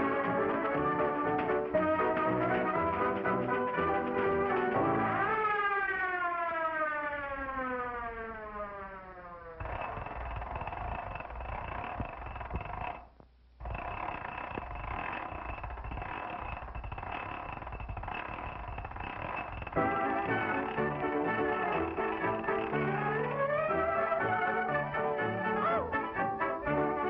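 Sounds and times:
tone sliding downward: 0:00.0 - 0:13.0, 0:13.6 - 0:27.0
noisy roar: 0:09.5 - 0:13.0, 0:13.6 - 0:27.0.

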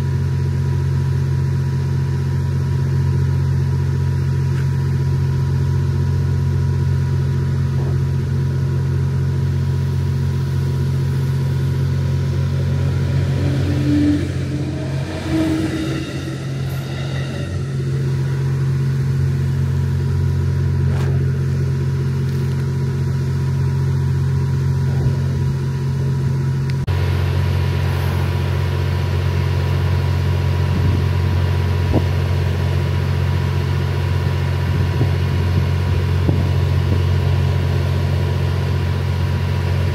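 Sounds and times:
diesel generator engines humming: 0:00.0 - 0:39.9
short gliding whine: 0:09.8 - 0:22.0.

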